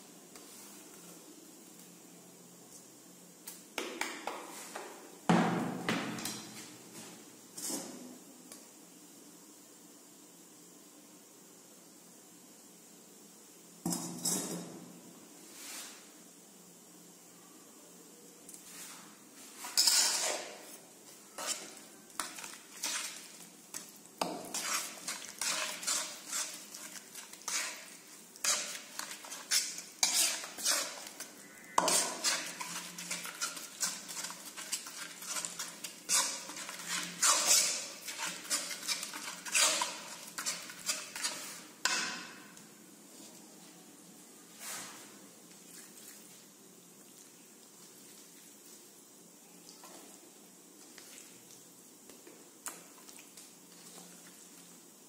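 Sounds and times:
spatula scraping a metal wok: 18.8s - 42.1s.

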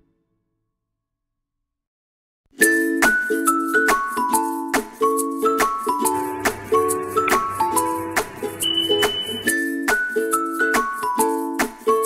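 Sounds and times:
light instrumental music: 2.6s - 12.0s.

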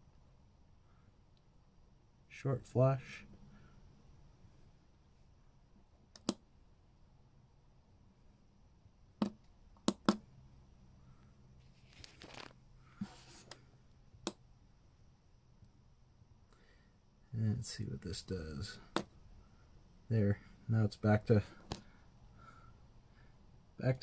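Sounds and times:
fingers rustling on plastic case: 11.7s - 12.6s.

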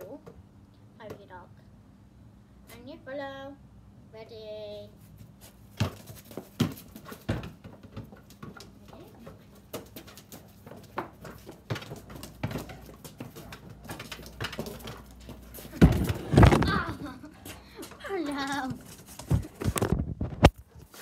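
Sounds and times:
dog paws scuffing paving: 4.9s - 19.9s
basketball knocking on paving: 5.7s - 17.2s.

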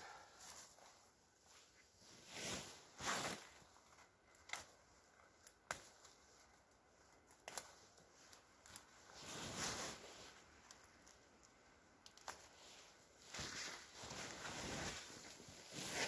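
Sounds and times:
jacket fabric rustling: 0.0s - 5.0s, 5.9s - 11.4s, 12.3s - 16.0s.

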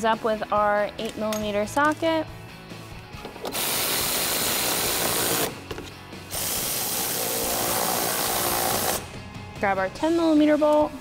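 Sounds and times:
powered ratchet driving screws: 3.4s - 5.6s, 6.3s - 9.0s.

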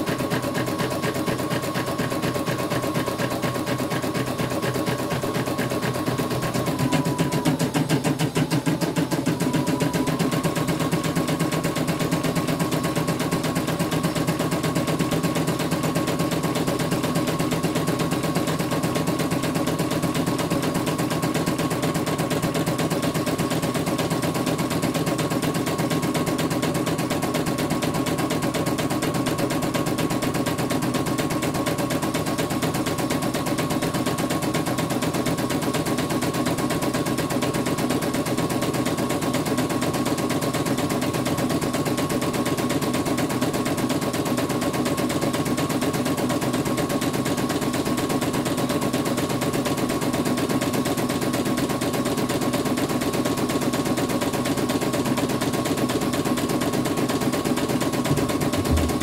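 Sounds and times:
steady motor hum: 57.8s - 59.0s.

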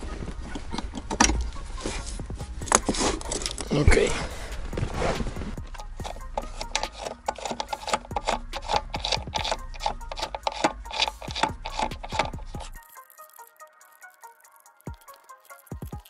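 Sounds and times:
hands rustling on carpet: 4.2s - 5.8s.

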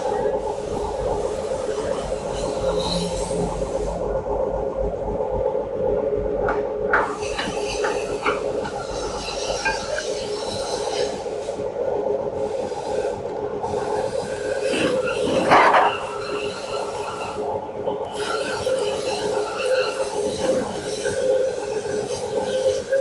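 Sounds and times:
metal rubbing and scraping: 0.4s - 4.0s.

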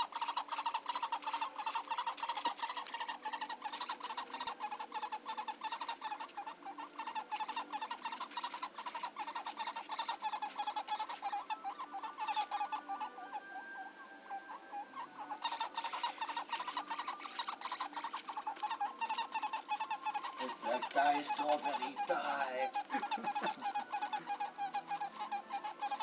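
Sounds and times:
baby woodpecker calling: 0.0s - 26.0s.

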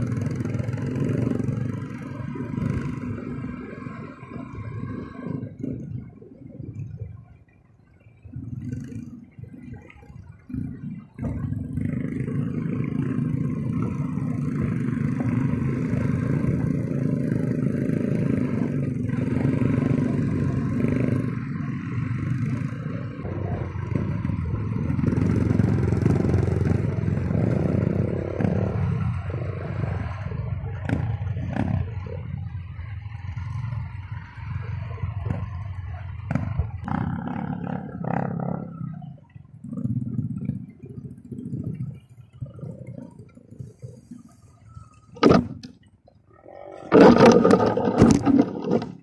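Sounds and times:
motorcycle engine revving: 0.0s - 6.0s, 10.5s - 43.1s, 46.5s - 49.0s
sharp knocks and clatter: 46.9s - 49.0s.

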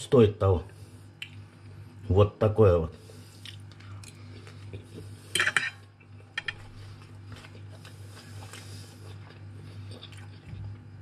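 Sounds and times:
fork clinking on plate: 5.4s - 5.8s.

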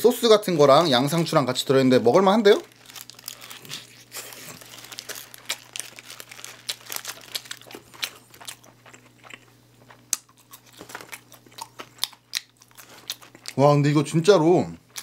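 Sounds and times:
paper wrapper crinkling: 2.3s - 9.0s
chewing crunches: 2.7s - 13.6s.

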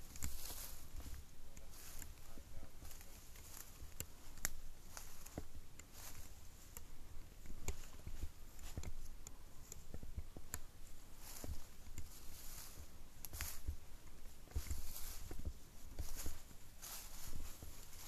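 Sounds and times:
footsteps through leaves: 0.3s - 1.0s, 14.8s - 15.3s, 16.0s - 18.0s.

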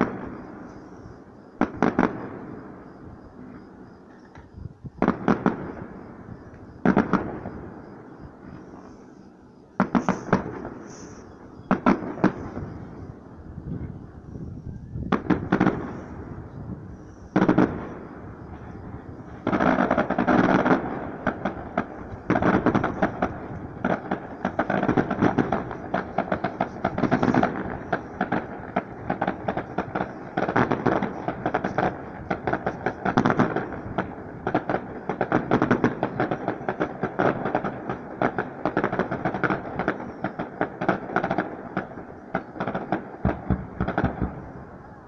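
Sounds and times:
fireworks bangs and crackles: 0.0s - 45.0s.

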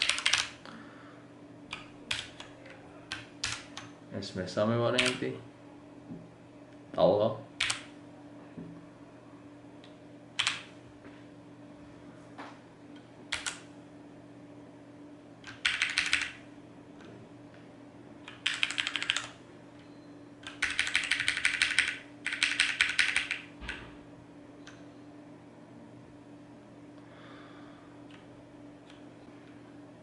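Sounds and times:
mechanical keyboard typing: 0.0s - 0.6s, 1.7s - 2.5s, 3.1s - 3.9s, 5.0s - 5.2s, 7.6s - 7.9s, 10.4s - 10.7s, 13.3s - 13.6s, 15.4s - 16.4s, 18.3s - 19.4s, 20.4s - 23.8s.

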